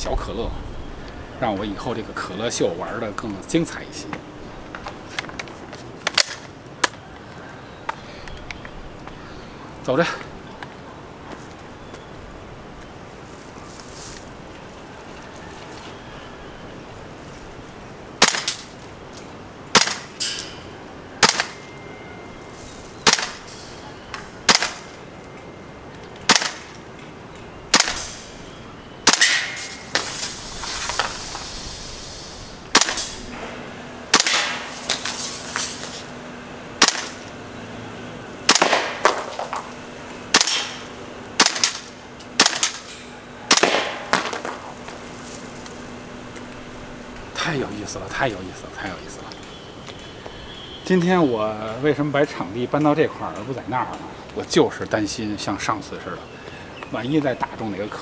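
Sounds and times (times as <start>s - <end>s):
airsoft rifle shots: 18.2s - 18.7s, 19.7s - 20.4s, 21.2s - 21.6s, 23.0s - 23.5s, 24.4s - 25.0s, 26.3s - 26.7s, 27.7s - 28.3s, 29.0s - 30.4s, 32.7s - 33.2s, 34.1s - 35.2s, 36.8s - 37.2s, 38.5s - 39.4s, 40.3s - 42.9s, 43.5s - 44.6s
gas hiss: 29.5s - 33.3s.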